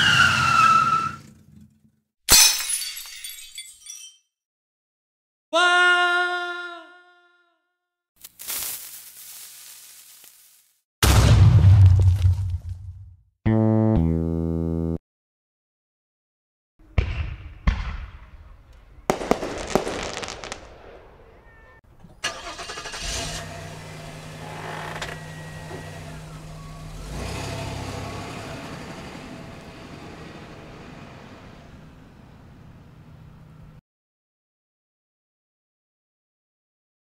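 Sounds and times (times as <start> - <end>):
car engine starting and running: 22.0 - 33.7.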